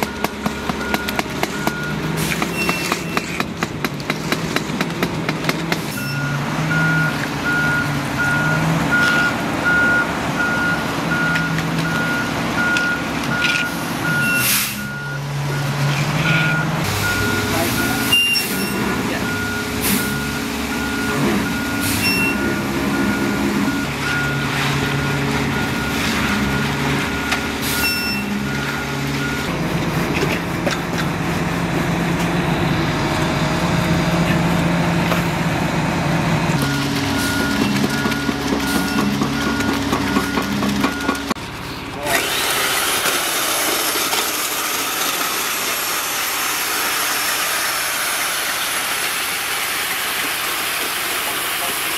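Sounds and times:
reversing alarm beeping: 0.0 - 3.3, 5.9 - 29.5, 36.6 - 41.4
truck engine running: 0.0 - 51.9.

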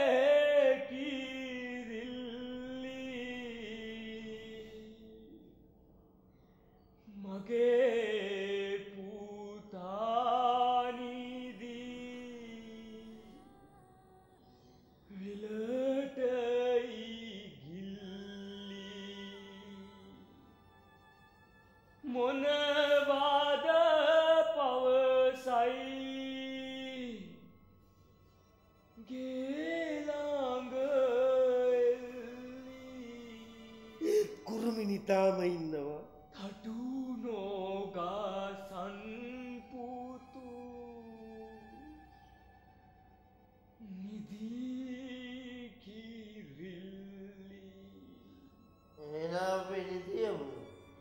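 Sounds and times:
person singing a lullaby: 29.0 - 42.0.

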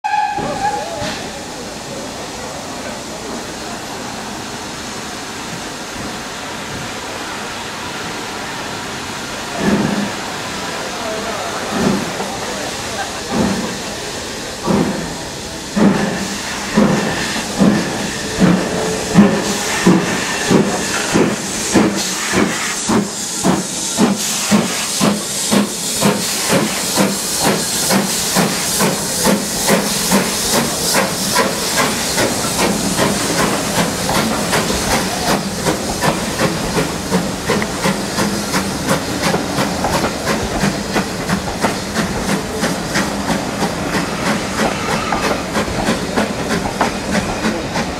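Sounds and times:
hiss of steam: 0.0 - 47.9
steam locomotive exhaust chuffs: 7.7 - 47.9.

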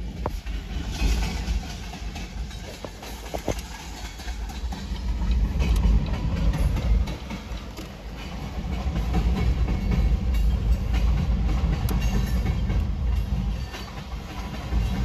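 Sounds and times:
freight train rumbling: 0.0 - 15.0
wheels clicking on rail: 0.0 - 15.0.

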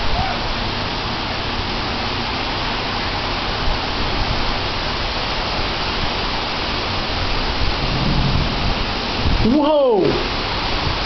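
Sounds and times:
heavy rain hissing: 0.0 - 11.0
low rumble: 7.5 - 9.5.

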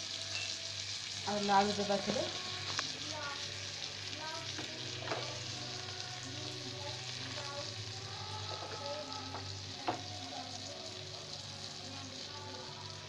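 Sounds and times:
bread sizzling in butter: 0.0 - 13.0
wooden spatula knocking on pan: 4.6 - 5.4.

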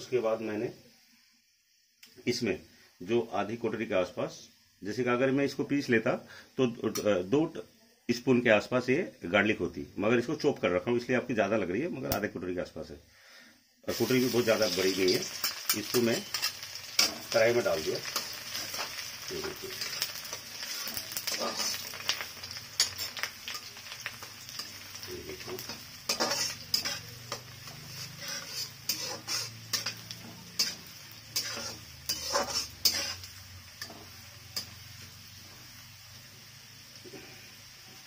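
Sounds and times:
garlic and spices sizzling in oil: 0.0 - 38.0
metal spatula scraping a pan: 13.9 - 34.8.

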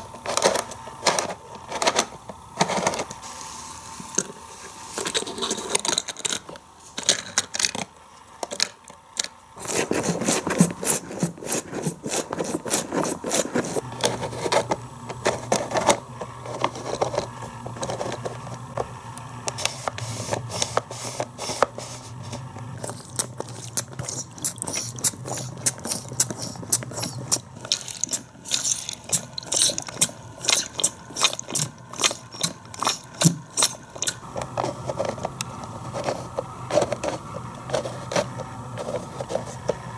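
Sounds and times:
plastic toy clicking and rattling: 22.8 - 34.2.

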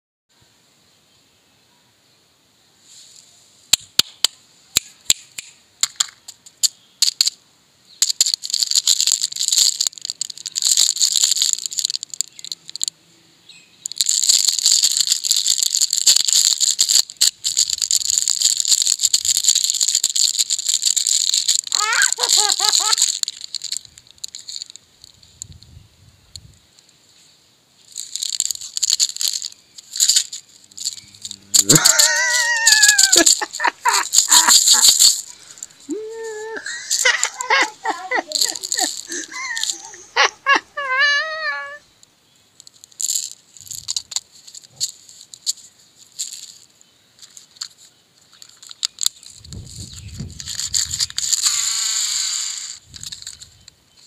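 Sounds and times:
plastic wrapper crinkling: 8.0 - 12.9, 13.8 - 25.6, 27.8 - 41.9, 42.6 - 54.0
plastic wrapper tearing: 8.0 - 12.9, 13.9 - 24.8, 27.9 - 40.4, 42.6 - 53.7.

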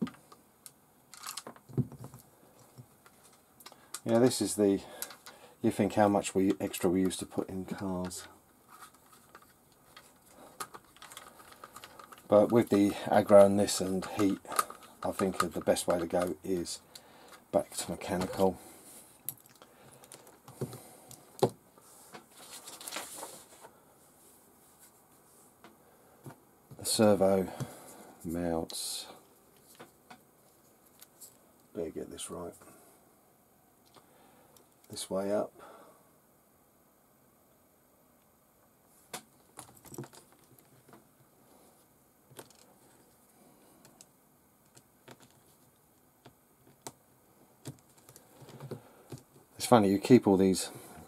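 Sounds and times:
small parts rustling and clicking: 0.0 - 23.7, 25.6 - 31.7, 33.8 - 35.0, 39.1 - 41.2, 41.8 - 47.0, 47.6 - 49.6
plastic parts clicking in fingers: 1.1 - 4.1, 8.8 - 17.4.

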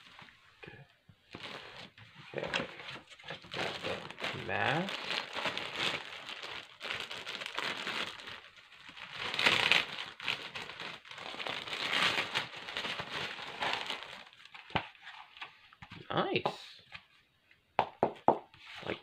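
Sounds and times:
plastic bag crinkling: 1.3 - 14.7.

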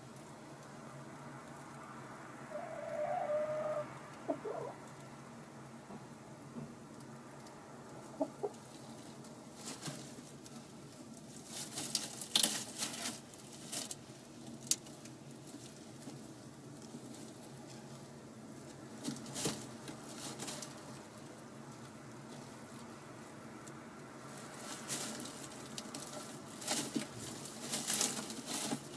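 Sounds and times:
hen rustling and scratching straw: 2.5 - 4.8, 8.1 - 23.5, 24.2 - 28.9
hen clucking softly: 2.5 - 5.0, 8.1 - 8.8.

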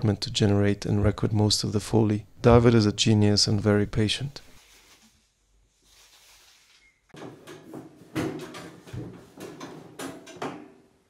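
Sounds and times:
metal frame parts clattering: 7.2 - 10.9.

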